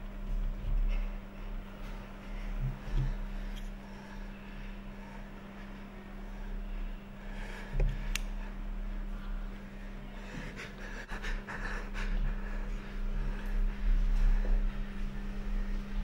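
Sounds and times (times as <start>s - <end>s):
low electrical hum: 0.0s - 16.0s
man panting heavily: 10.0s - 14.7s.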